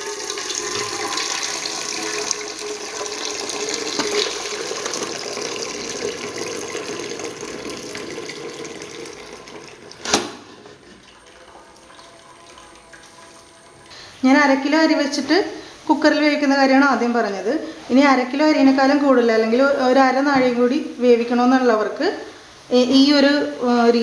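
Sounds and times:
water pouring into metal pot: 0:00.0 - 0:15.2.

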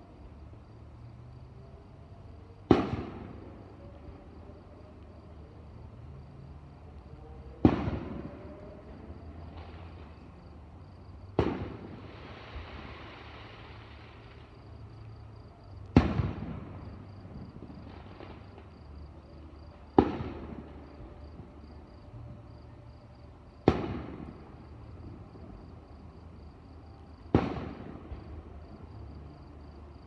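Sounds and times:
fireworks booming: 0:02.6 - 0:03.8, 0:07.6 - 0:10.3, 0:11.3 - 0:14.6, 0:15.9 - 0:18.8, 0:20.0 - 0:21.5, 0:23.6 - 0:25.4, 0:27.3 - 0:28.5.

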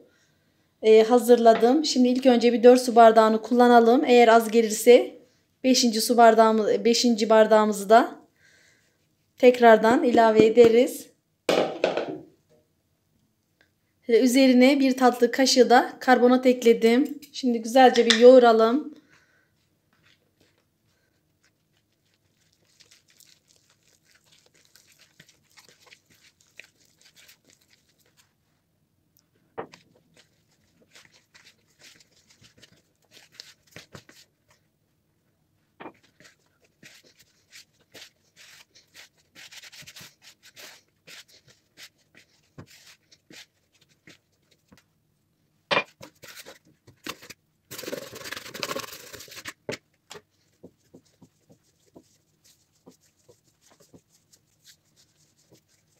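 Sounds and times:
knocks against plastic bowl: 0:11.5 - 0:12.3
hands kneading bread dough: 0:19.5 - 0:45.1, 0:45.9 - 0:55.9.

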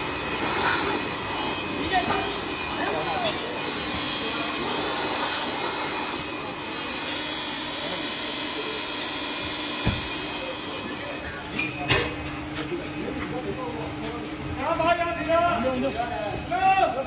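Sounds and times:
electric air blower whining: 0:00.0 - 0:11.6.

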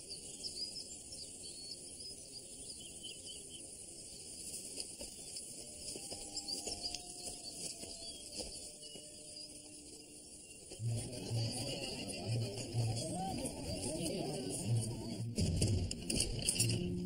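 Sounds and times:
crickets chirping: 0:00.0 - 0:10.8.

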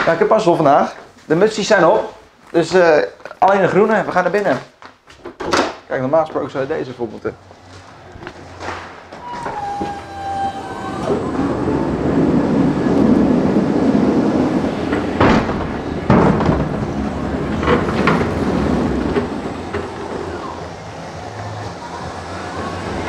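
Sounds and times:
pallet truck wheels rumbling: 0:07.1 - 0:23.0
short falling squeal: 0:09.1 - 0:13.0
sharp knocks: 0:14.9 - 0:20.6.

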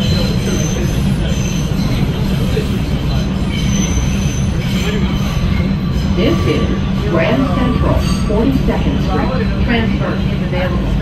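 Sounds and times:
wheel squeals: 0:00.0 - 0:06.2
subway train rumbling: 0:00.0 - 0:11.0.

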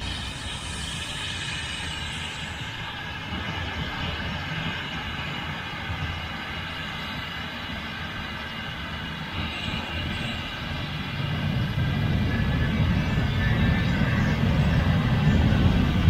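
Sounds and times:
jet engine low rumble: 0:00.0 - 0:16.0
jet engine whine: 0:00.0 - 0:16.0.

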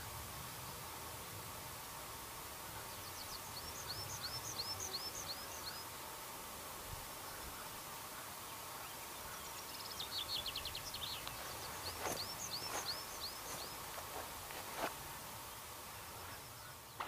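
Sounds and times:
steady outdoor hiss: 0:00.0 - 0:17.0
birds singing: 0:02.6 - 0:06.0, 0:07.2 - 0:14.9, 0:15.5 - 0:17.0.

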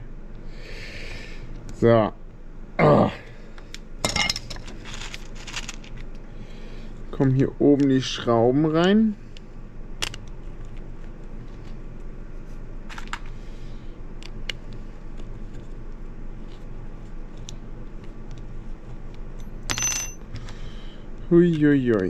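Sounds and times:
metallic clink: 0:19.4 - 0:20.2.

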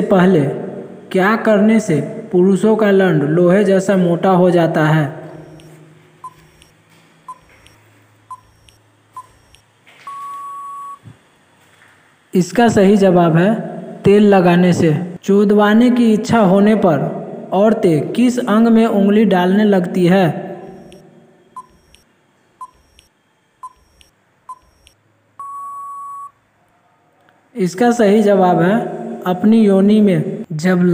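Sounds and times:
short high beeps: 0:05.4 - 0:11.1, 0:20.6 - 0:22.0, 0:22.6 - 0:26.3.

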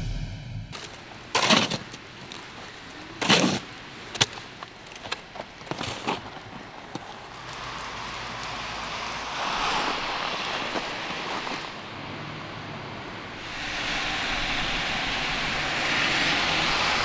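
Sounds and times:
shovel scraping snow and ice: 0:00.8 - 0:02.4, 0:03.2 - 0:03.7.

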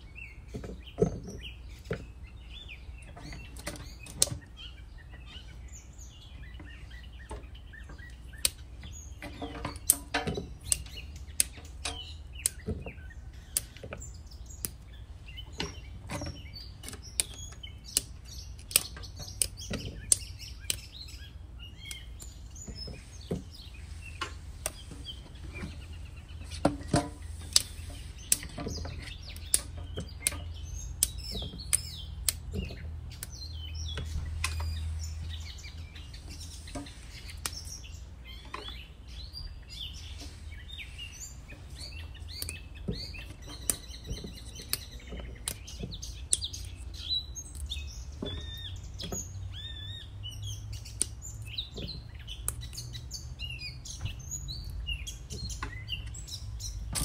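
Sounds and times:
birds chirping: 0:00.0 - 0:57.0
beans snapping by hand: 0:08.0 - 0:25.8, 0:26.4 - 0:35.4, 0:36.3 - 0:37.9, 0:40.2 - 0:49.7, 0:50.4 - 0:53.0.

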